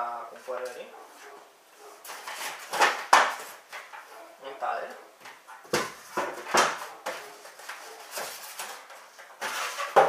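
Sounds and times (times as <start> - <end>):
cardboard and foam packaging rustling: 2.0 - 4.1, 5.6 - 10.0.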